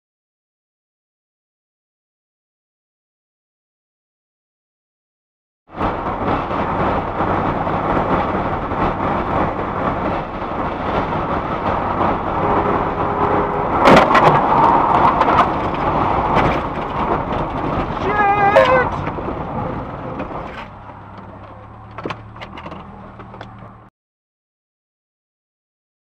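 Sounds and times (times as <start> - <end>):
car road and engine noise: 5.7 - 23.9
wavering squeal: 12.2 - 15.5.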